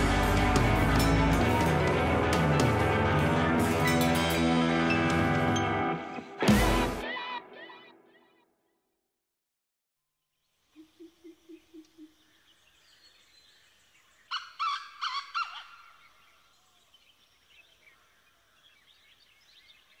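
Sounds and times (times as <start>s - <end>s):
faint bird twittering: 10.4s - 20.0s
sharp bird calls: 10.7s - 20.0s.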